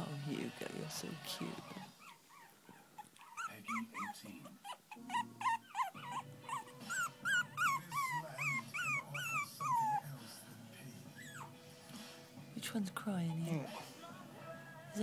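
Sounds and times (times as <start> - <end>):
puppy whimpering: 1.6 - 10.2, 11.1 - 11.6, 13.4 - 14.0.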